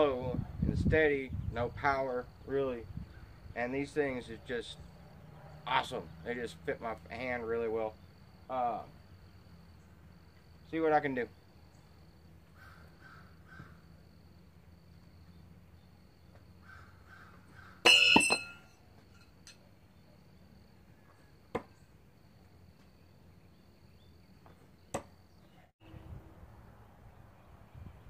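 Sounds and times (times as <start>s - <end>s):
faint insect whine: 0.0s - 28.0s
distant bird calls: 2.4s - 28.0s
metallic clang ringing: 17.8s - 19.6s
knives striking wooden log: 21.5s - 21.8s, 24.9s - 25.2s.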